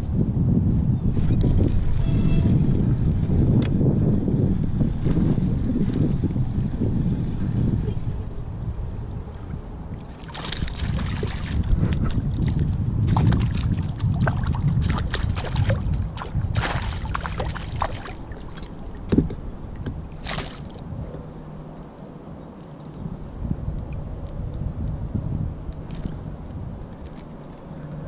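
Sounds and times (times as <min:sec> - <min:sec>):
wind rumble on microphone: 0:00.0 - 0:28.0
water slaps: 0:10.1 - 0:18.7, 0:20.2 - 0:20.8
fish splashing at water surface: 0:13.1 - 0:18.7, 0:20.2 - 0:20.8.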